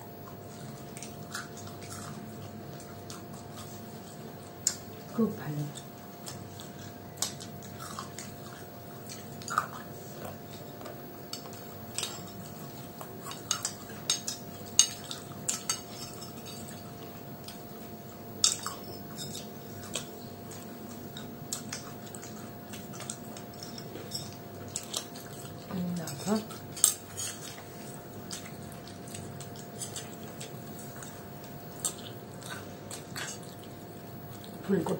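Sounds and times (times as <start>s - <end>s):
faint steady hum: 0.0s - 34.9s
spoon and plates clinking: 18.4s - 19.5s.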